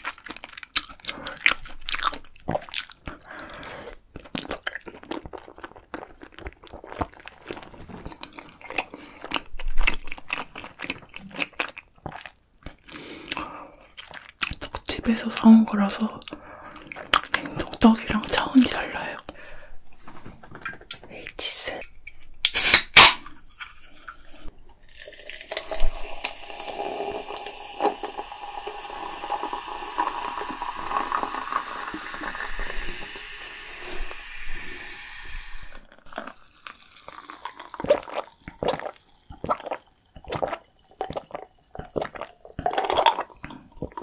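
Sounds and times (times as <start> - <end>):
can opening pop and hiss: 22.4 - 23.3
soda fizzing over ice: 24.8 - 35.9.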